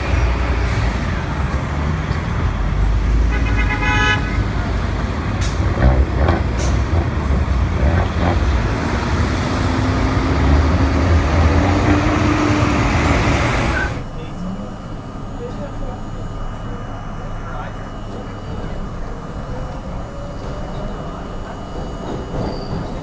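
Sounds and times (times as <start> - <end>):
bus engine pulling away: 0.0 - 3.3, 4.3 - 21.6
heavy street traffic rumble: 0.0 - 23.0
vehicle horn toot: 3.3 - 4.5.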